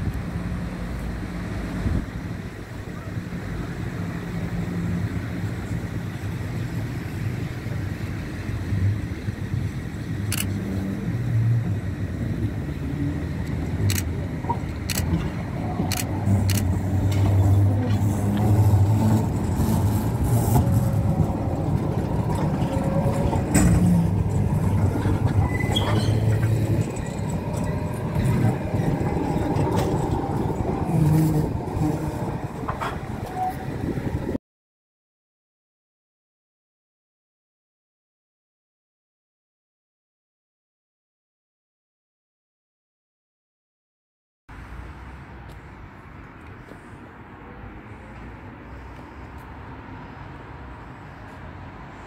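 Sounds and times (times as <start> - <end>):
tram rumbling past: 0.0 - 34.4
wheels clicking on track: 0.0 - 34.4.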